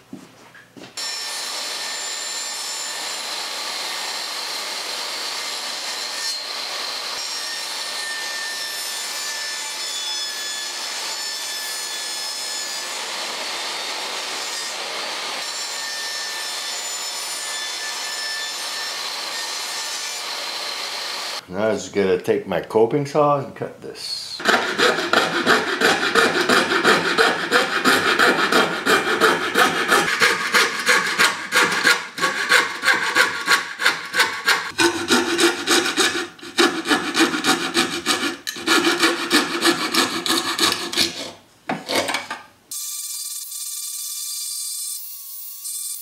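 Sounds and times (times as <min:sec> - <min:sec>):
coping saw cutting plywood: 0:24.4 - 0:42.2.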